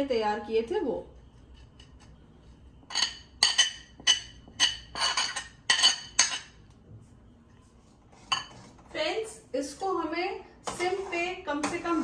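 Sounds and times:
metal spoon clinking on ceramic plate: 2.9s - 6.6s.

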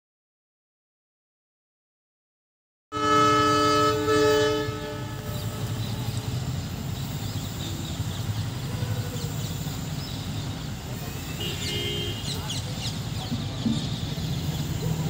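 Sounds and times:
locomotive horn blasts: 2.9s - 6.1s, 11.0s - 12.4s
train rumbling: 3.0s - 15.0s.

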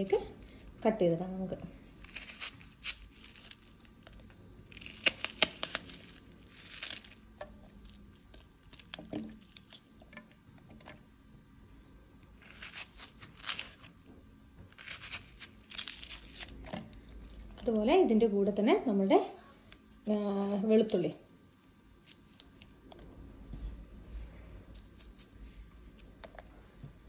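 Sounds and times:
knife slicing onion: 2.0s - 3.6s, 12.4s - 13.9s.

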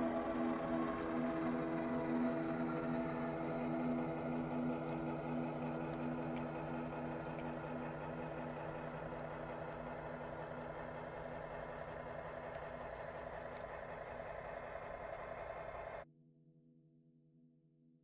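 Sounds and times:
model locomotive engine running: 0.0s - 16.0s.

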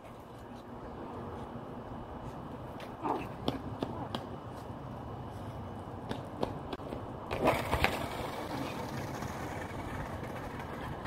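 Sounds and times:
skateboarder falling on asphalt: 7.3s - 11.0s.

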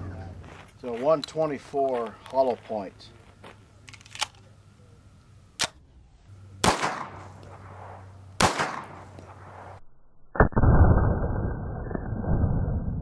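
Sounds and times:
sharp click: 5.6s - 5.8s
pistol shots with echo: 6.6s - 9.8s.

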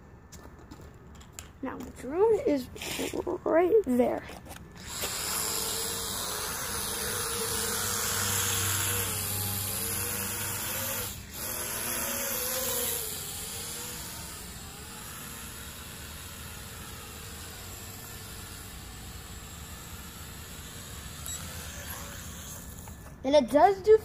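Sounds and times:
toy quadcopter propellers buzzing: 4.8s - 23.5s.

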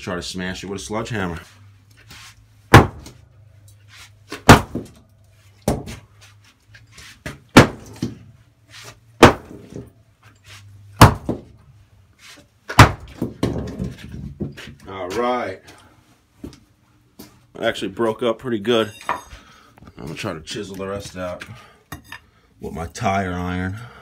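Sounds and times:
sledgehammer striking concrete: 2.7s - 3.2s, 4.4s - 5.0s, 7.5s - 8.2s, 9.2s - 9.8s, 11.0s - 11.5s, 12.7s - 13.9s.

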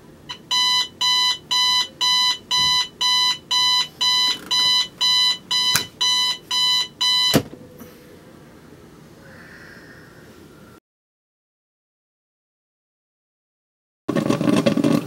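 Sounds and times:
alarm clock beeping: 0.3s - 7.4s.

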